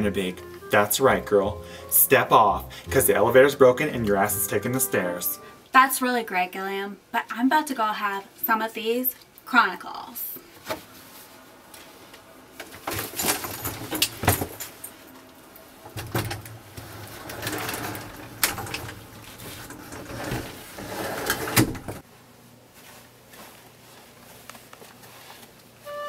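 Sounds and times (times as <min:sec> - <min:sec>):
rustling of clothes: 0:10.4 - 0:15.9, 0:16.6 - 0:26.0
knocks and clatters in a closet: 0:12.6 - 0:14.9, 0:15.9 - 0:22.0.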